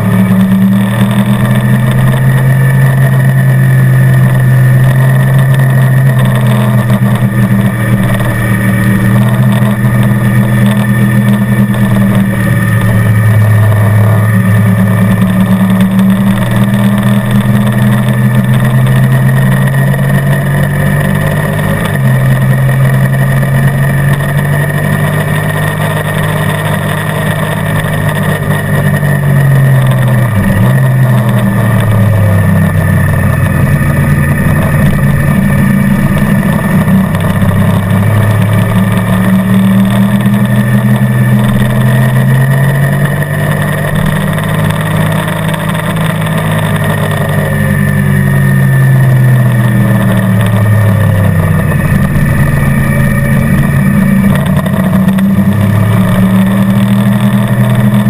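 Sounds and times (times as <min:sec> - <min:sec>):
motorcycle engine revving: 0:00.0 - 0:58.0
wind and road noise: 0:00.0 - 0:58.0.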